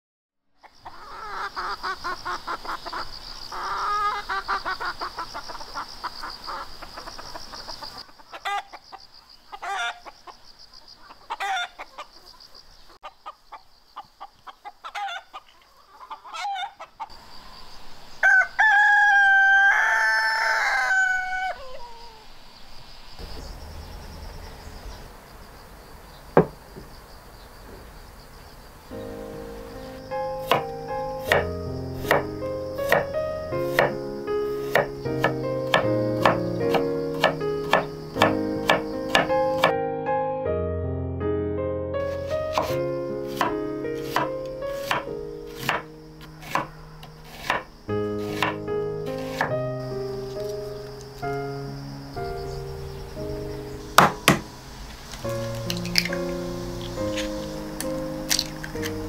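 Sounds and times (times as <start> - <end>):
chickens clucking: 0.6 - 17.5, 29.5 - 39.7, 42.0 - 51.4
rooster crowing: 6.4 - 10.2, 11.3 - 11.9, 16.0 - 16.8, 18.2 - 22.3.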